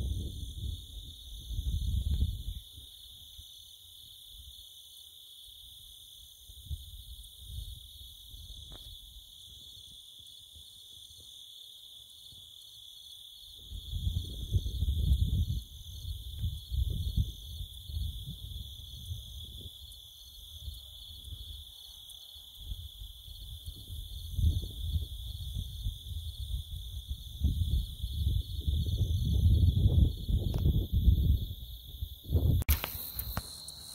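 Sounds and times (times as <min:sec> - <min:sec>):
wind buffeting microphone: 0:00.0 - 0:02.6, 0:13.6 - 0:19.8, 0:23.0 - 0:33.6
insects chirring: 0:00.0 - 0:33.9.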